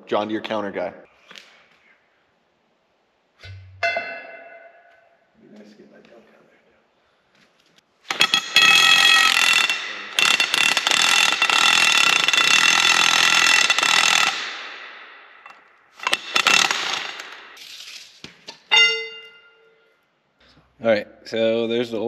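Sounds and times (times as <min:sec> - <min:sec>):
impact wrench hammering: 0:08.1 - 0:17.6.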